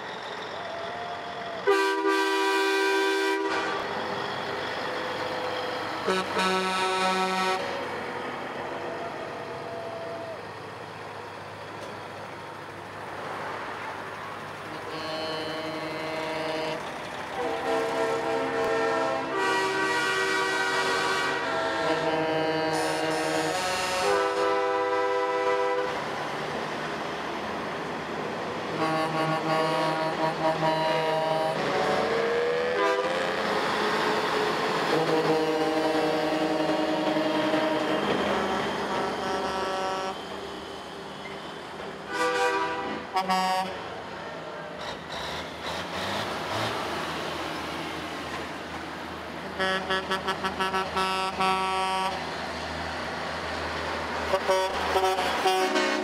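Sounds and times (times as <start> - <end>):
truck air horn: 1.6 - 4.0, 6.0 - 7.9, 14.7 - 26.1, 28.7 - 33.7, 34.8 - 40.5, 42.0 - 43.9, 49.4 - 52.2, 54.3 - 56.0
truck rushing past: 25.0 - 56.0.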